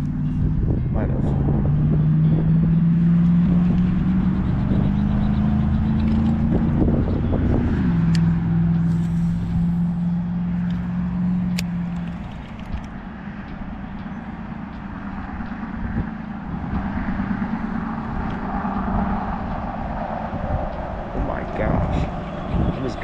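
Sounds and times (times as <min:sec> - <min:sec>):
vehicle engine running: 0:00.0 - 0:23.0
sharp ticks: 0:10.6 - 0:23.0.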